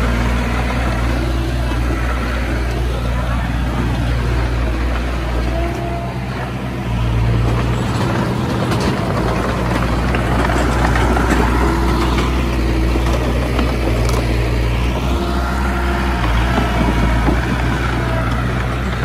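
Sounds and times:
bulldozer diesel engine running: 0.0 - 19.0.

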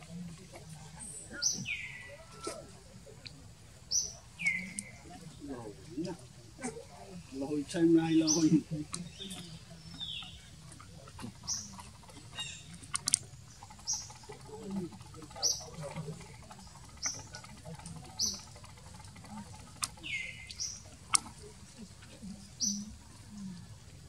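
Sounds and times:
sharp clicks: 12.7 - 14.2.

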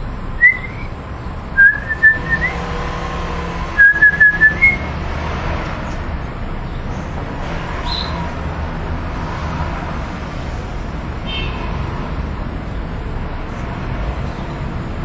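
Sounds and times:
magpie whistling: 0.4 - 1.0, 1.6 - 2.6, 3.8 - 4.9.

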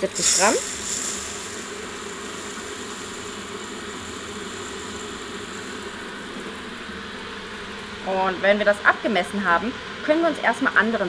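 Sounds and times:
electric kettle hissing: 0.0 - 8.3.

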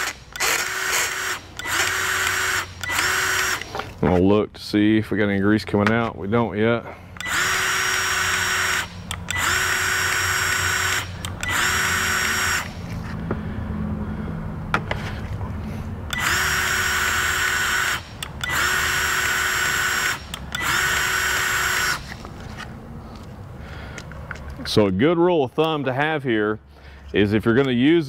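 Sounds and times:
grease gun motor whining: 0.0 - 3.9, 7.2 - 12.9, 16.1 - 22.3.

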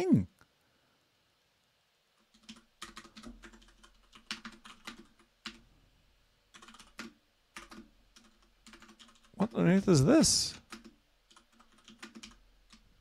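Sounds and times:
computer keyboard typing: 2.2 - 5.6, 6.5 - 9.4, 10.6 - 12.9.

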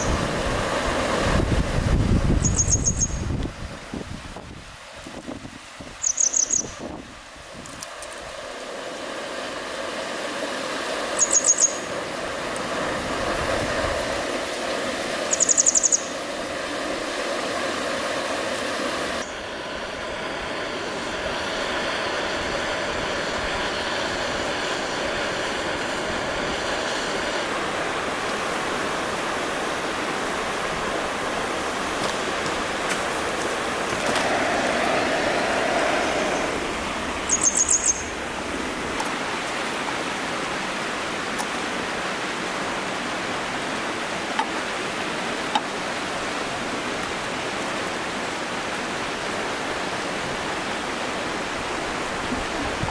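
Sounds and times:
steady outdoor rushing noise: 0.0 - 6.0, 6.7 - 52.9
small bird chirping: 2.4 - 3.3, 6.0 - 6.8, 11.2 - 11.9, 15.3 - 16.1, 37.3 - 38.1.

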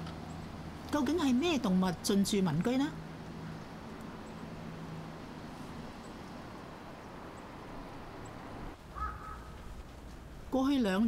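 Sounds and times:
car rumble and hiss: 2.8 - 8.8.

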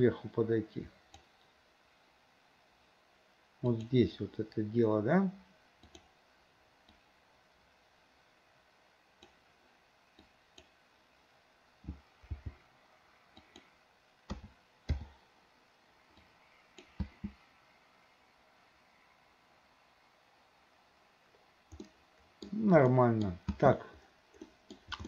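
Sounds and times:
faint room hiss: 0.0 - 25.0
keyboard and mouse clicks: 5.8 - 6.1, 11.8 - 12.6, 13.3 - 13.7, 14.3 - 15.1, 16.2 - 17.4, 21.7 - 22.6, 24.4 - 25.0.

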